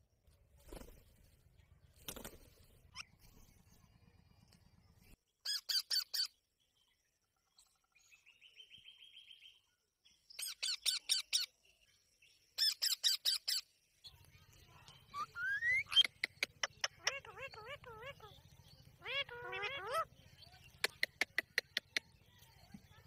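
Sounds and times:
bird trill: 0:05.4 - 0:07.0, 0:10.3 - 0:23.0
parakeets screeching: 0:16.8 - 0:20.1.

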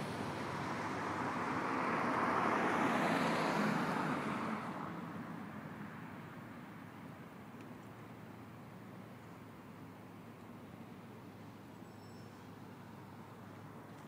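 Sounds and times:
vehicle passing by: 0:00.0 - 0:05.2.

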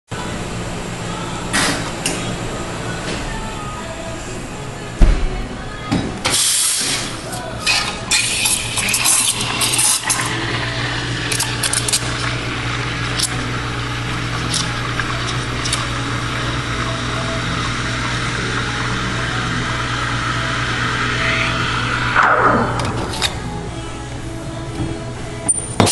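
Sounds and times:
low hum: 0:09.9 - 0:25.4.

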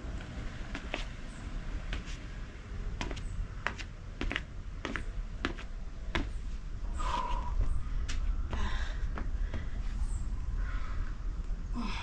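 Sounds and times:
shoes tapping on a deck: 0:00.7 - 0:01.2, 0:01.8 - 0:02.3, 0:03.0 - 0:06.5.

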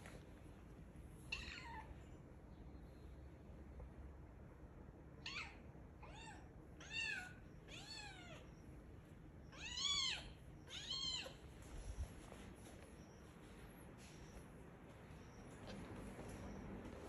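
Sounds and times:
kitten meowing: 0:05.2 - 0:08.4, 0:09.5 - 0:11.4.

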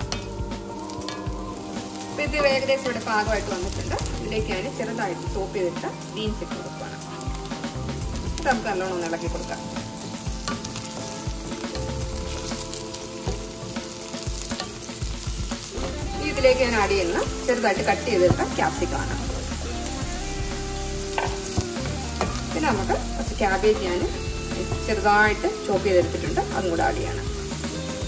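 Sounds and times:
vegetables sizzling in oil: 0:00.0 - 0:28.0
spatula knocking and scraping pan: 0:21.1 - 0:22.4.

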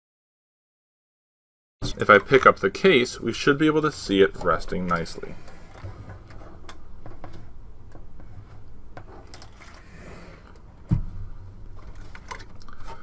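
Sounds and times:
heavy thump on table: 0:10.9 - 0:11.2
computer case clicks and rattles: 0:11.8 - 0:13.0.

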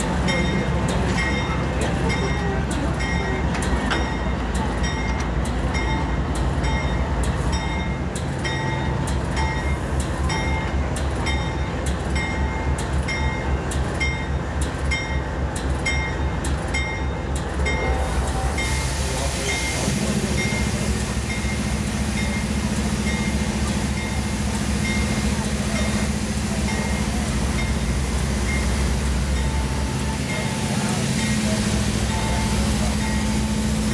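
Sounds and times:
diesel locomotive rumbling: 0:00.0 - 0:33.9
locomotive bell ringing: 0:00.0 - 0:33.9
loud hiss of air: 0:18.0 - 0:21.2.

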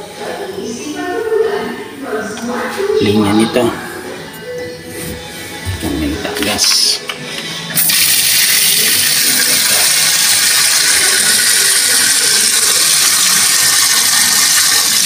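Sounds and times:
faucet spray running into sink: 0:07.8 - 0:15.0.

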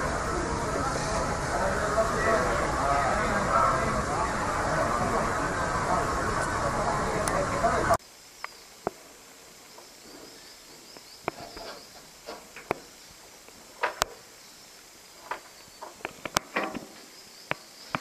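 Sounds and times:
faint high chirping: 0:07.3 - 0:08.9, 0:09.6 - 0:18.0.

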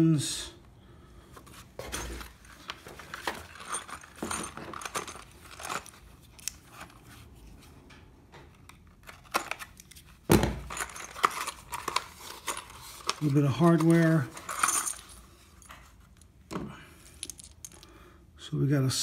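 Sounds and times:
packaging rustling and crinkling: 0:01.4 - 0:07.2, 0:10.6 - 0:16.0
small metal clinks: 0:03.3 - 0:06.6.

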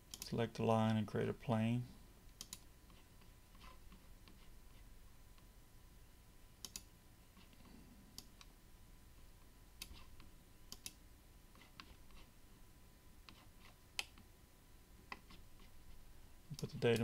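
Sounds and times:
computer mouse clicking: 0:00.1 - 0:01.0, 0:02.3 - 0:04.5, 0:06.6 - 0:08.5, 0:09.8 - 0:12.3, 0:13.2 - 0:14.3, 0:15.1 - 0:15.7, 0:16.5 - 0:17.0.

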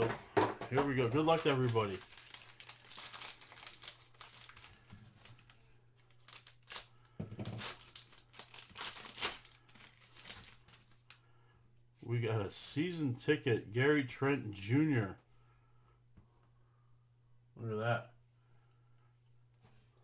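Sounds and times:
faint steady hum: 0:00.1 - 0:20.0
foil wrapper crinkling: 0:00.8 - 0:11.2.

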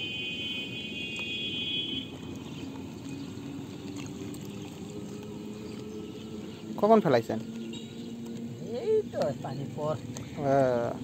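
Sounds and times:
shallow water trickling and splashing: 0:00.0 - 0:11.0.

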